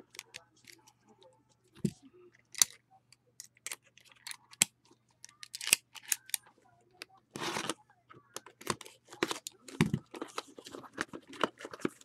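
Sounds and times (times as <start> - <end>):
card packs clicking and snapping: 5.3 - 6.4, 8.4 - 12.0.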